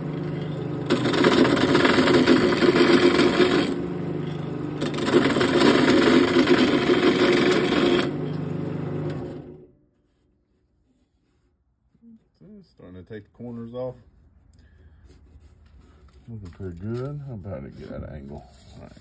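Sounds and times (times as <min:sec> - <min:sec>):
lathe motor humming: 0:00.0 - 0:09.7
turning tool scraping wood: 0:00.3 - 0:08.1.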